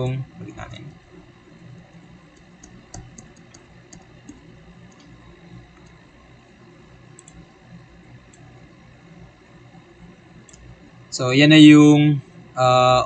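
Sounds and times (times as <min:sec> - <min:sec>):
faint background hum: 0:00.0 - 0:13.0
computer mouse clicks: 0:02.3 - 0:06.0, 0:07.1 - 0:07.5, 0:08.3 - 0:08.5, 0:10.5 - 0:10.7.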